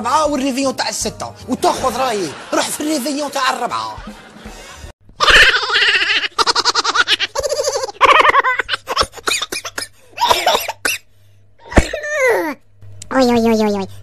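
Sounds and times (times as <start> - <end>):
man laughing hard: 4.0 - 9.3.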